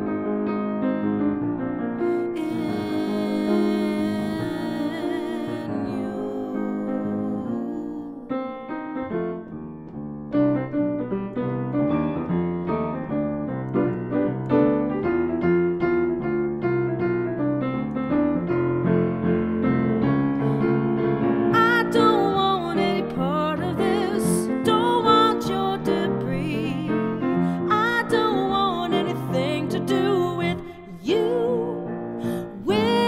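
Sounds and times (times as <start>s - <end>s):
grand piano playing: 0.0s - 33.0s
woman singing: 2.1s - 8.7s, 21.5s - 33.0s.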